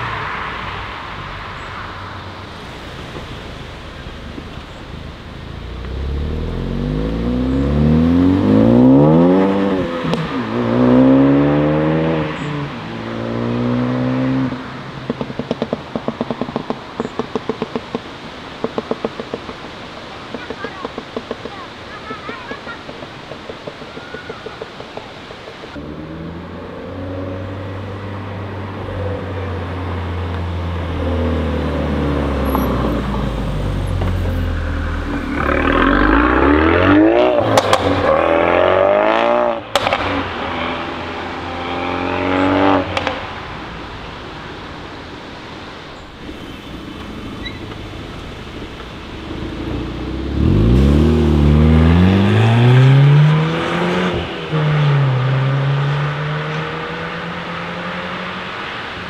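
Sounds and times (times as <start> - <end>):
second car revving: 2.6 - 17.1, 25.7 - 44.2, 46.2 - 59.0
car accelerating hard: 5.6 - 15.6, 25.8 - 43.5, 46.2 - 59.0
exhaust cracks: 15.0 - 21.6, 31.6 - 44.0
car engine idling: 43.3 - 51.6.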